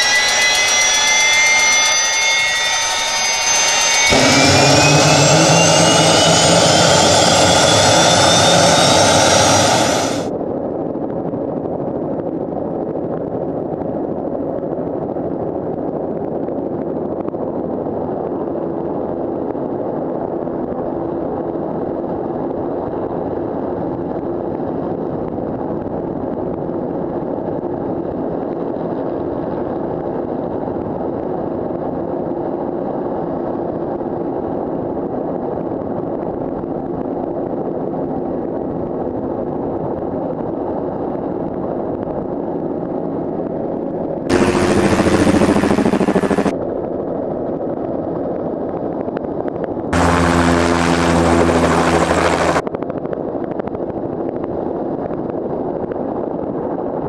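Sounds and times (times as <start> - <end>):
helicopter turbine and rotor: 0.0 - 10.6, 44.3 - 47.9, 50.0 - 54.4.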